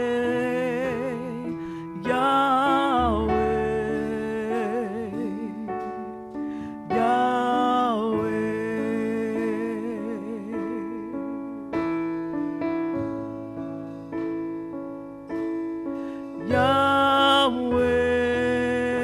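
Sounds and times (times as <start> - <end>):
woman singing with vibrato: 0.0 - 5.9, 6.8 - 11.1, 16.4 - 19.0
sustained keyboard chords: 0.0 - 19.0.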